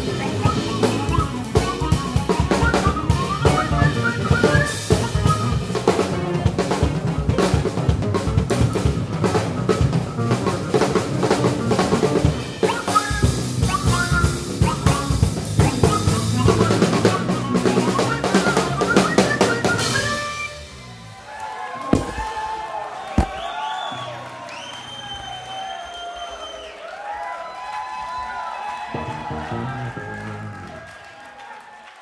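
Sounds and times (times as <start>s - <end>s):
drum kit playing: 0.0s - 21.1s, 21.9s - 22.6s, 23.2s - 23.4s
electric bass: 0.0s - 21.2s, 29.0s - 30.8s.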